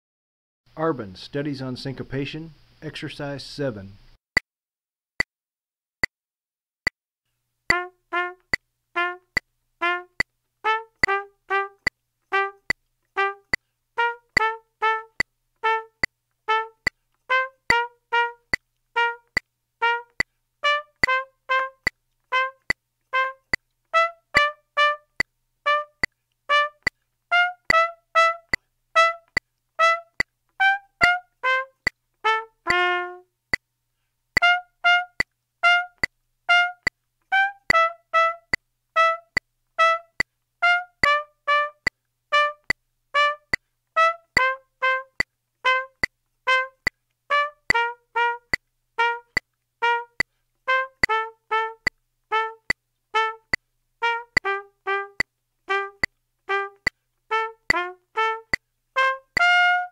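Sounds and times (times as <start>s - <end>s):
metronome clicking: 7.7s - 10.3s, 11.0s - 20.3s, 20.9s - 32.0s, 34.4s - 40.3s, 41.0s - 43.6s, 44.3s - 47.0s, 47.7s - 53.6s, 54.2s - 59.8s
trumpet playing short notes: 7.7s - 33.3s, 34.4s - 59.9s.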